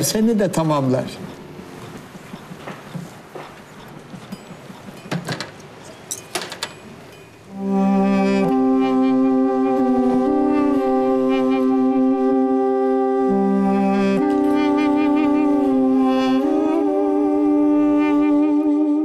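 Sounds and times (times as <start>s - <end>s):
glass jars clinking: 4.2s - 7.5s
reed wind instrument playing: 7.5s - 19.0s.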